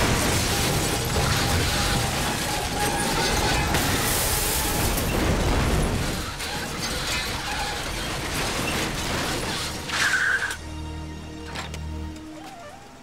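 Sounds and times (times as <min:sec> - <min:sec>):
hissing and clattering: 0:00.0 - 0:10.6
low music drone: 0:09.7 - 0:13.0.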